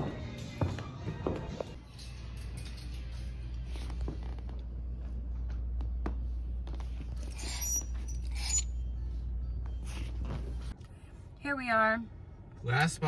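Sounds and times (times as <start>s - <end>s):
clothes hangers scraping metal rack: 7.2s - 8.8s.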